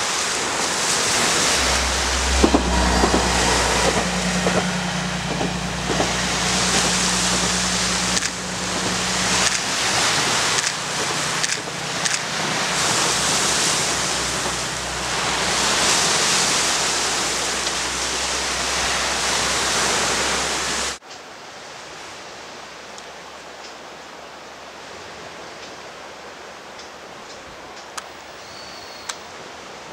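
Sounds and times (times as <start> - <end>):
diesel railcar engine hum: 0.0 - 21.0
surf on rocky shore: 0.0 - 21.0.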